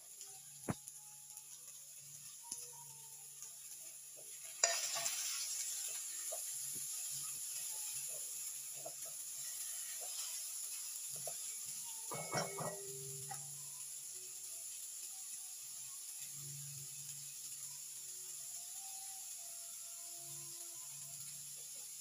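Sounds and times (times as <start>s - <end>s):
vegetables sizzling in oil: 0.0s - 22.0s
spatula scraping pan: 4.4s - 13.5s.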